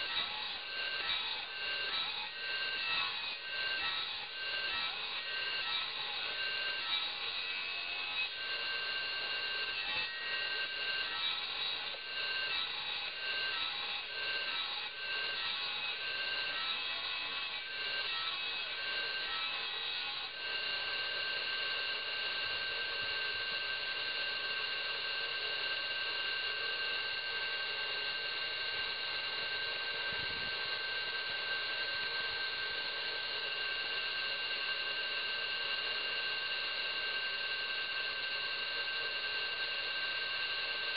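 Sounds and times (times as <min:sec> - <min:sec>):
circular saw cutting wood: 0:00.0 - 0:21.4
saw spinning with high whine: 0:00.0 - 0:40.9.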